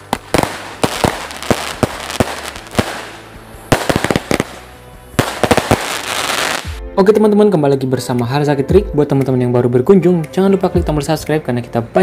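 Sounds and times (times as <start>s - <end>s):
firework hissing and crackling: 0.0s - 6.8s
firework launch pops and bangs: 0.0s - 6.8s.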